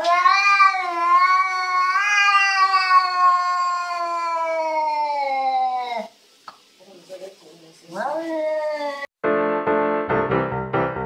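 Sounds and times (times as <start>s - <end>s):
cat meowing: 0.0s - 6.1s.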